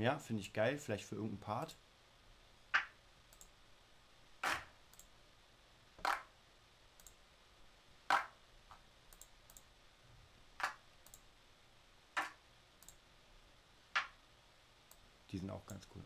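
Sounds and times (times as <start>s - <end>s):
faint computer clicks: 8.1s - 9.7s, 10.6s - 11.3s, 12.2s - 13.0s.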